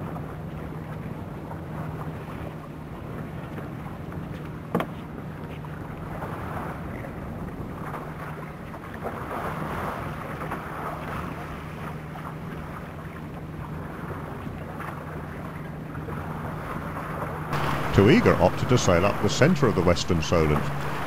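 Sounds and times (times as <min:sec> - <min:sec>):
sea water washing: 0:00.0 - 0:21.0
steady low hum: 0:17.3 - 0:21.0.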